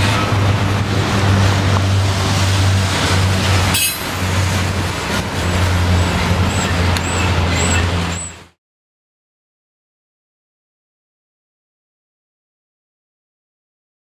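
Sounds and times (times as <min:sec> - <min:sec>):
freight train rumbling past: 0:00.0 - 0:08.6
sharp metal clank: 0:03.7 - 0:04.1.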